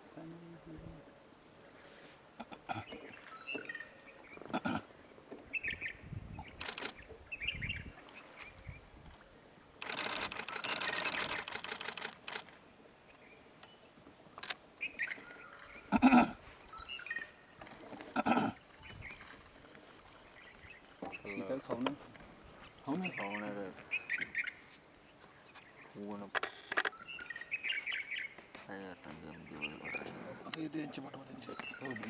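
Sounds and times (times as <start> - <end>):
camera shutters clicking: 6.5 - 7.0, 9.8 - 12.6.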